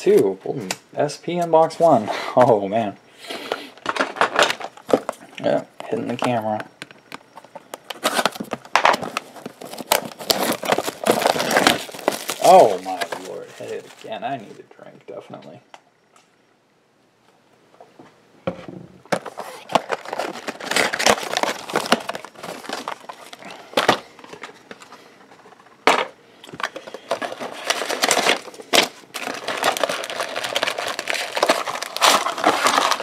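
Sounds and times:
plastic and foil wrapping crinkling: 3.5 - 14.6, 19.1 - 33.0.

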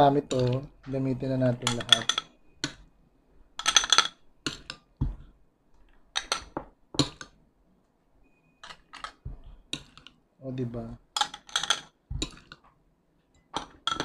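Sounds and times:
spoon clinking against glass and ice: 1.6 - 2.8, 3.6 - 4.8, 11.2 - 12.5, 13.6 - 14.0.

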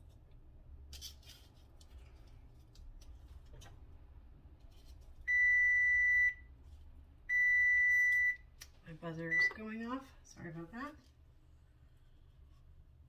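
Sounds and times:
appliance buzzer beep: 5.3 - 6.5, 7.3 - 8.4, 9.3 - 9.6.

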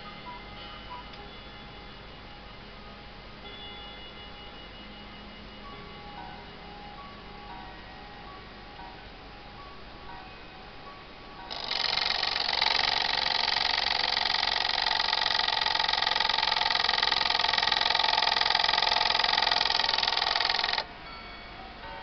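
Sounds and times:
alarm clock bell ringing: 11.5 - 22.0.

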